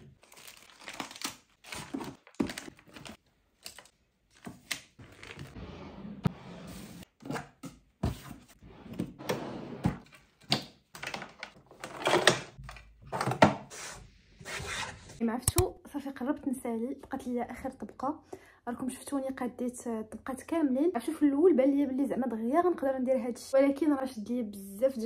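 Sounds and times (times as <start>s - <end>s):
packaging rustling: 0.0s - 5.6s.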